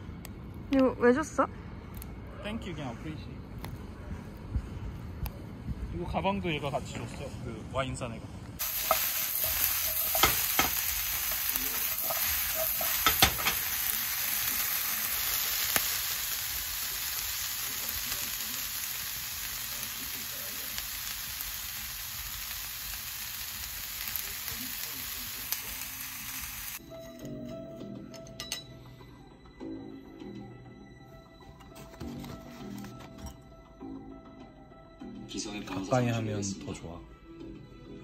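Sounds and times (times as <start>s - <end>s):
vegetables sizzling in pan: 8.6s - 26.8s
utensil clicking against pan: 8.8s - 13.7s.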